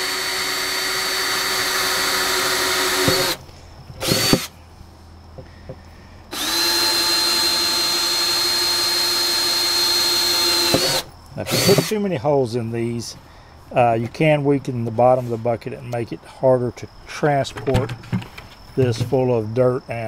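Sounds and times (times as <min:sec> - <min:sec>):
cordless drill whining: 0:00.0 - 0:03.4, 0:04.0 - 0:04.5, 0:06.3 - 0:12.0.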